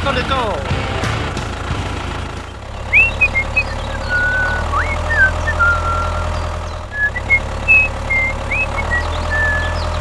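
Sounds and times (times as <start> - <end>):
tractor engine idling: 0.0 - 10.0
high whistle-like chirps: 2.9 - 6.3, 7.0 - 9.8.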